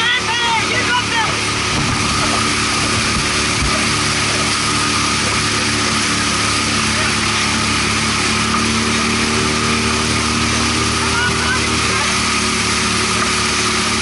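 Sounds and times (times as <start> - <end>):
outboard engine droning: 0.0 - 14.0
water and wind hiss: 0.0 - 14.0.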